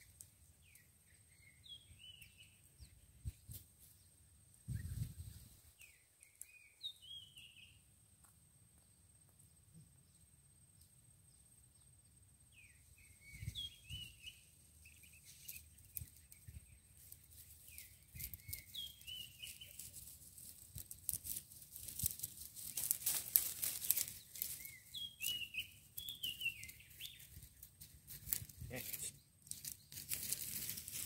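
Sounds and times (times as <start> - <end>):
bird chirping: 0.5 - 7.9, 8.8 - 20.1, 22.6 - 31.0
dry crackling rustle: 14.7 - 31.0.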